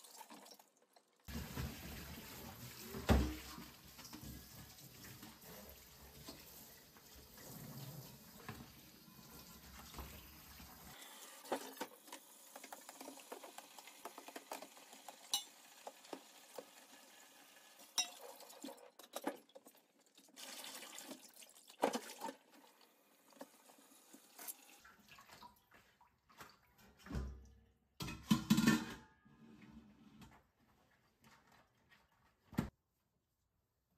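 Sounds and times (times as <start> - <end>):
dishes clattering: 14.0 - 16.0, 17.9 - 18.3, 28.0 - 29.2
dishes and glassware clinking: 15.3 - 15.6, 17.9 - 18.3, 28.0 - 29.4.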